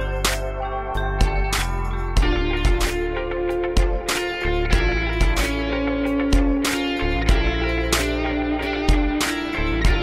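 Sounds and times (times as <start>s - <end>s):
bass line: 0.0s - 10.0s
guitar: 0.0s - 10.0s
drum beat: 3.8s - 5.7s, 6.3s - 10.0s.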